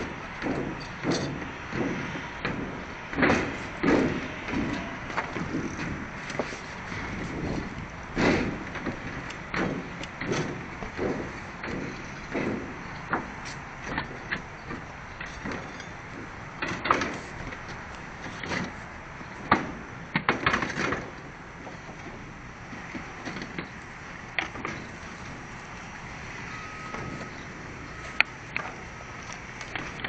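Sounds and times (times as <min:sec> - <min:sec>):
knocks and clatters: 0:00.0 - 0:18.8
wind rushing over microphone: 0:00.0 - 0:20.1.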